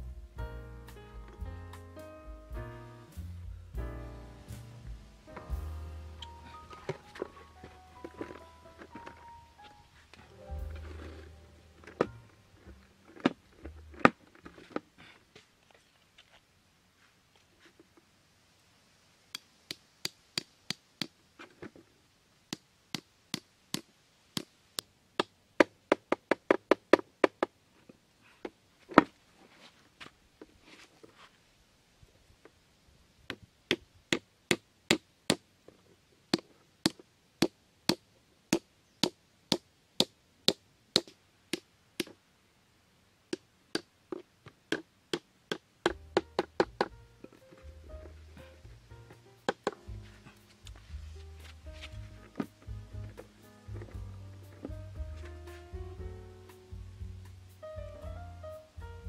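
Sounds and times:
hammer striking bamboo stake: 0:19.4 - 0:21.2, 0:33.3 - 0:35.4, 0:36.3 - 0:42.2, 0:44.7 - 0:46.9.

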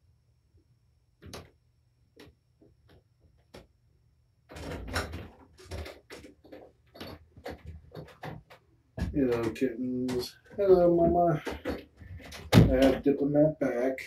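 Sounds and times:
loud rustling and knocking: 0:04.5 - 0:13.1.

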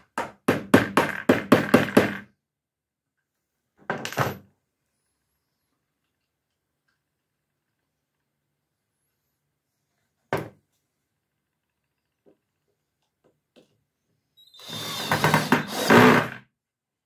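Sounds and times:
cordless drill driving a screw: 0:14.5 - 0:16.4.

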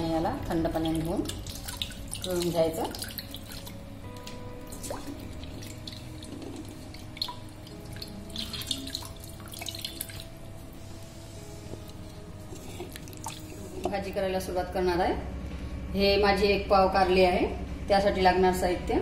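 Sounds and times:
background music: 0:00.0 - 0:19.0
water splashing in a steel bowl: 0:00.6 - 0:03.9, 0:04.7 - 0:10.4, 0:12.6 - 0:14.0
tap water pouring: 0:00.8 - 0:10.4, 0:11.8 - 0:14.0.

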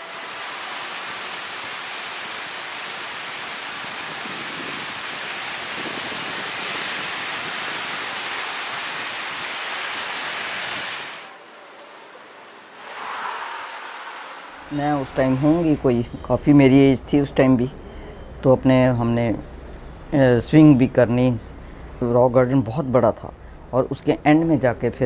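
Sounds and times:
heavy rain pouring: 0:00.0 - 0:11.4.

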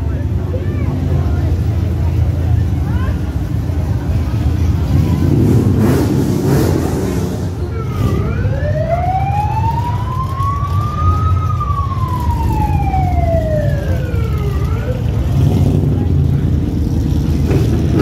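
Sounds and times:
siren wailing: 0:07.7 - 0:15.2.

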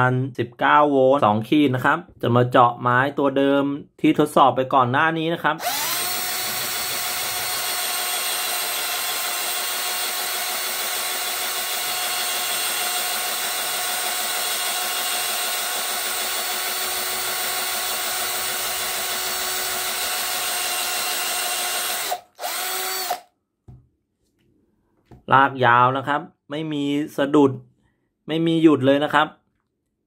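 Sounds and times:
cordless drill boring into board: 0:05.6 - 0:23.3.

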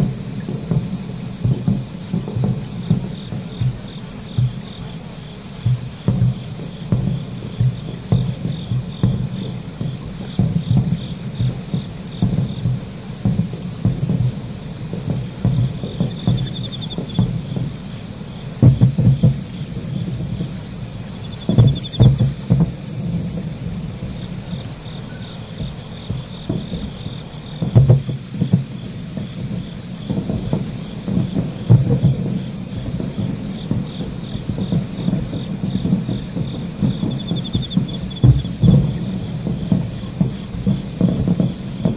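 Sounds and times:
cricket trills: 0:00.0 - 0:41.9
distant fireworks booming: 0:00.0 - 0:41.9
insects chirring: 0:00.0 - 0:41.9.

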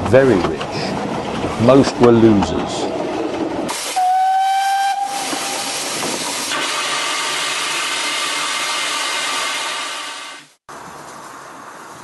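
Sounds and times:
steam locomotive whistle: 0:03.7 - 0:05.9, 0:06.5 - 0:10.5
steam hissing: 0:03.7 - 0:10.6.

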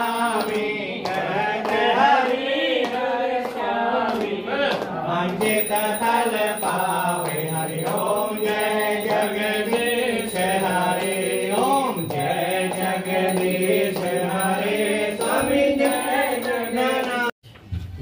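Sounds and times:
person chanting mantras: 0:05.4 - 0:17.3.

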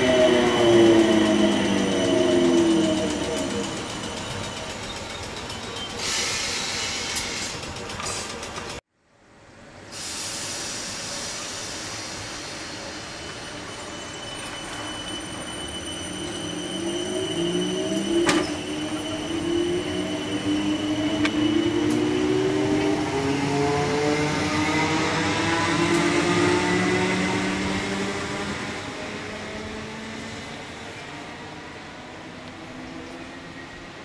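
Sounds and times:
electric train motors whining: 0:12.8 - 0:30.3.

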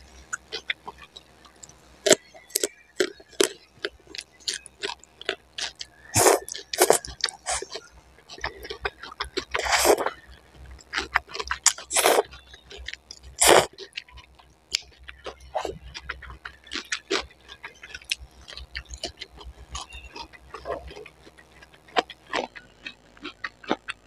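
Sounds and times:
wet chewing clicks: 0:00.1 - 0:24.0
slurping noodles: 0:06.2 - 0:07.8, 0:09.4 - 0:10.2, 0:10.9 - 0:12.3, 0:13.3 - 0:13.7.

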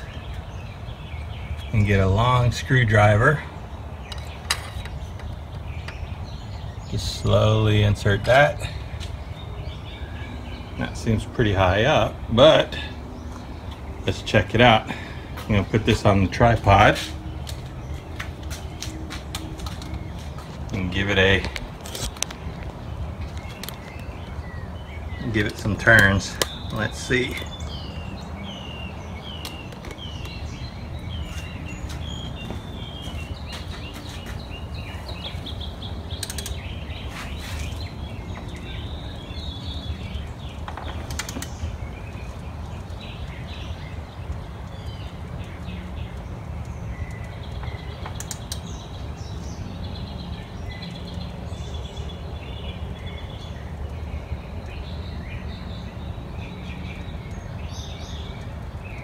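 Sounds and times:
small birds chirping: 0:00.0 - 0:59.0
sharp clicks: 0:36.1 - 0:36.8, 0:40.5 - 0:41.7, 0:44.3 - 0:48.8.

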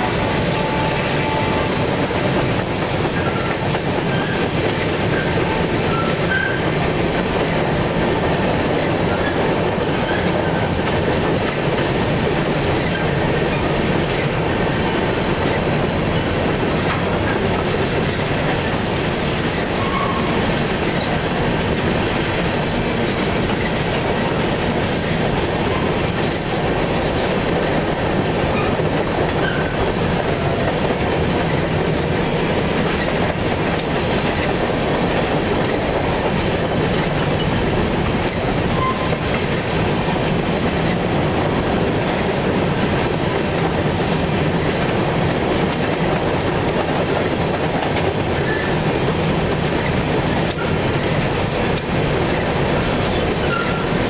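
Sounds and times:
freight train wheels rolling on rails: 0:00.0 - 0:54.0.

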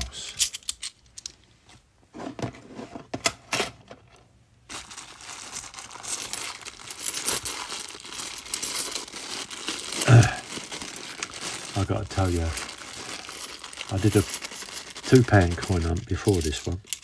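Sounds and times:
plastic bag of coins crinkling: 0:04.7 - 0:17.0.

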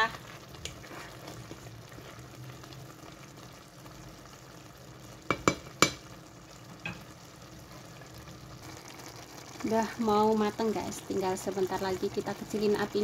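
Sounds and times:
wooden spoon stirring: 0:00.0 - 0:03.3
pot simmering with low sizzle: 0:00.0 - 0:13.0
spoon knocking metal pot: 0:05.3 - 0:06.0.

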